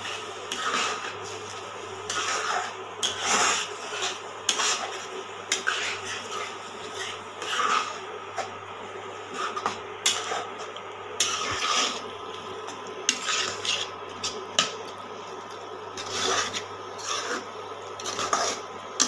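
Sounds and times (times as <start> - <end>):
spatula scraping frying pan: 0.0 - 19.0
steady low hum: 0.0 - 19.0.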